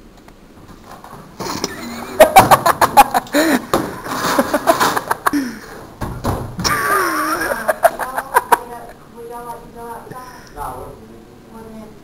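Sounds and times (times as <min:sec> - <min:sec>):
smacks and thumps: 0:03.7 - 0:06.8.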